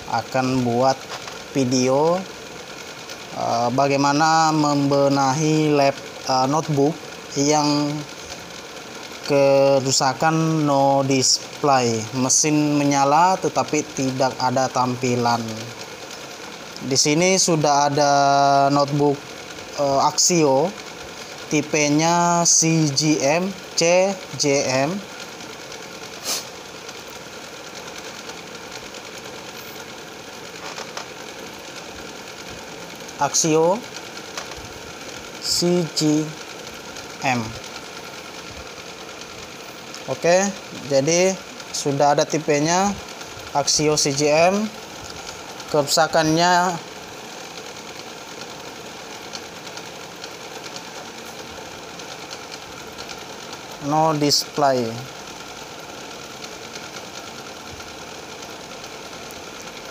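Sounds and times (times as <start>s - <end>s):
machine hum: 0.0s - 59.9s
small motor running: 0.0s - 59.9s.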